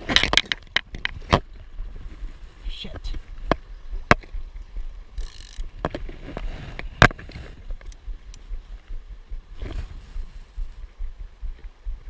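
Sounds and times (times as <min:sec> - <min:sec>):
fishing rod clicks and knocks: 0:00.0 - 0:01.5, 0:03.4 - 0:04.4, 0:05.1 - 0:08.6
low rumble: 0:03.2 - 0:12.0
reel ratcheting buzz: 0:05.1 - 0:05.8.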